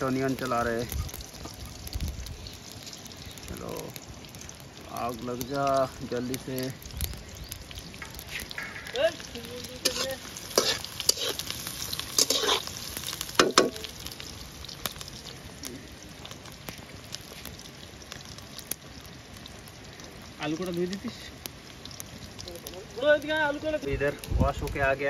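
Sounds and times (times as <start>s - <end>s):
onions sizzling in hot oil: 0.0s - 25.0s
spatula scraping a pan: 8.0s - 9.0s, 9.8s - 13.7s.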